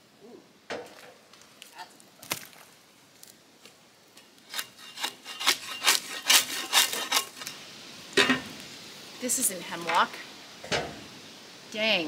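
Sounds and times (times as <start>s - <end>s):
spade scraping bark off log: 4.5s - 7.6s.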